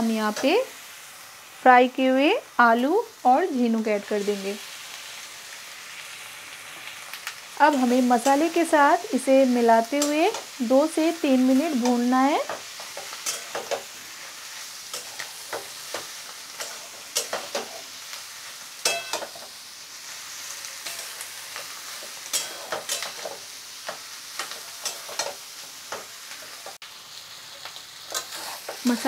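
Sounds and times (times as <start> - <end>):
food sizzling: 0.0 - 29.0
metal spatula scraping a metal pan: 14.9 - 18.0, 18.8 - 19.5, 20.7 - 23.4, 24.4 - 25.4.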